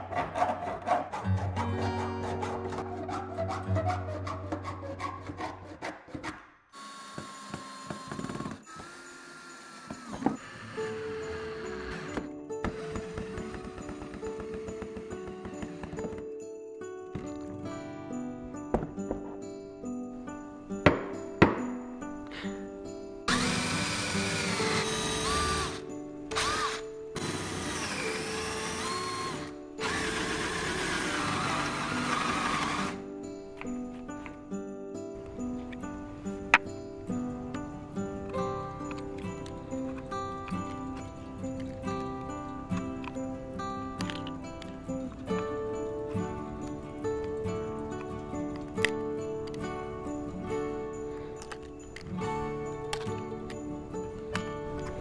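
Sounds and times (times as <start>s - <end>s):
hand tool rasping wood: 0.0s - 16.2s, 23.3s - 25.8s, 26.4s - 33.0s
background music: 0.0s - 55.0s.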